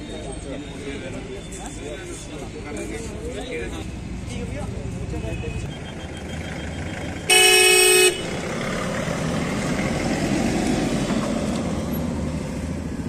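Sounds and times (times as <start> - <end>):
vehicle horn blast: 7.3 - 8.4.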